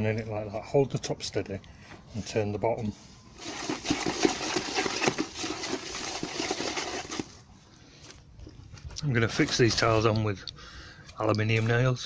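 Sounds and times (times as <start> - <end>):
stick scraping wet cement: 3.4 - 7.4.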